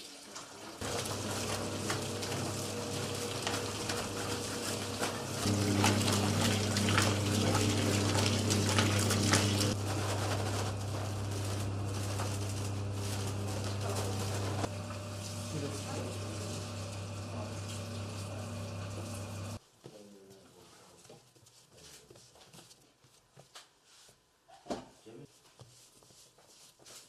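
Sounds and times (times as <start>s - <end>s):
dough churning in bowl: 0.7s - 19.6s
dough kneading machine motor hum: 0.7s - 19.6s.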